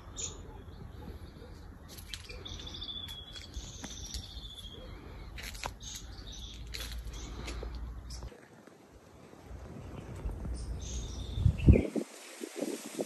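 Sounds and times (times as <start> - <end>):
birds chirping: 0.0 - 8.7, 9.6 - 12.0.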